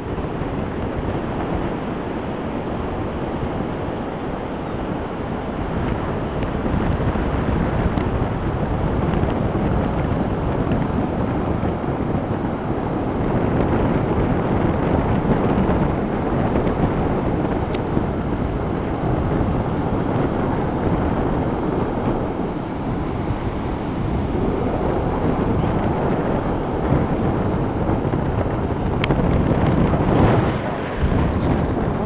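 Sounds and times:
surf breaking on shore: 0.0s - 32.0s
wind buffeting microphone: 0.0s - 32.0s.

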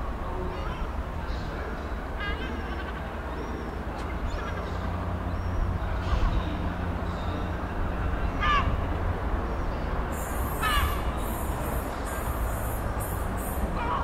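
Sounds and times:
distant diesel locomotive rumble: 0.0s - 14.0s
bird calling: 10.1s - 14.0s.

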